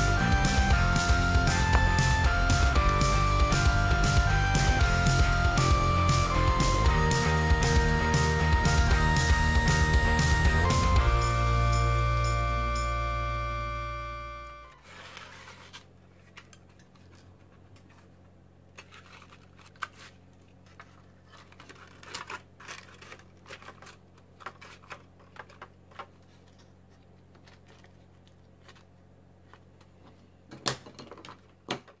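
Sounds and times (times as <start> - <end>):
steady low hum: 0.0 - 22.0
plastic parts clicking and tapping: 18.8 - 28.9, 29.5 - 32.0.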